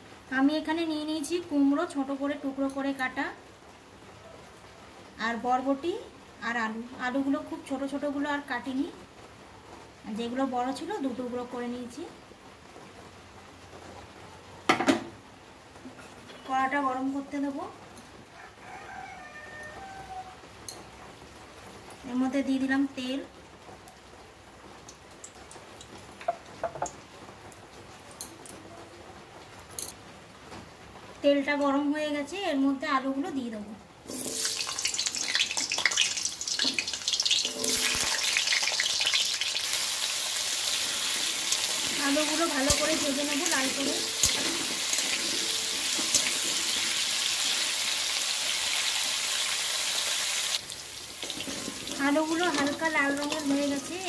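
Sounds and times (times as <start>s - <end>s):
hot oil ticking and popping: 24.8s - 28.4s, 34.1s - 49.6s, 50.5s - 54.0s
steel spatula clink: 37.4s - 38.2s.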